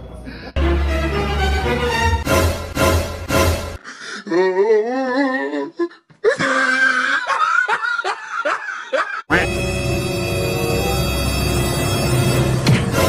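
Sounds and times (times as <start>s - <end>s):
music: 0.0s - 3.8s, 9.3s - 13.0s
laughter: 6.4s - 9.3s.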